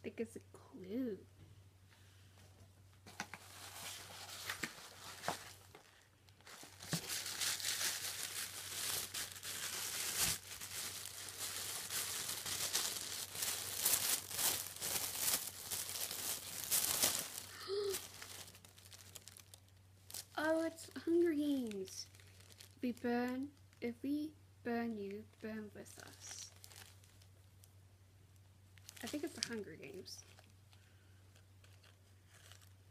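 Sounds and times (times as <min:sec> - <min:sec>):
tissue paper crinkling: 0:03.4 - 0:20.5, 0:21.4 - 0:22.8, 0:26.0 - 0:27.4, 0:28.8 - 0:32.9.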